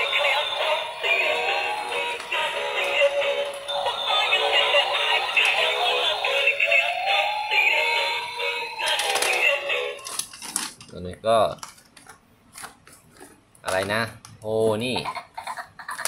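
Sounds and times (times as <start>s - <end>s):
electronic toy tune: 0.0s - 10.2s.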